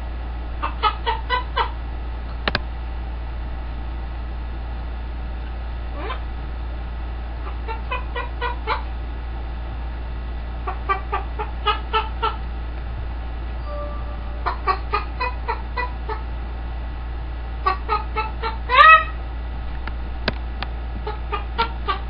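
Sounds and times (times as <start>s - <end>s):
steady low hum: 0.0s - 22.0s
parrot imitating chicken clucks: 7.5s - 8.8s, 14.3s - 16.2s, 17.6s - 19.1s, 21.0s - 22.0s.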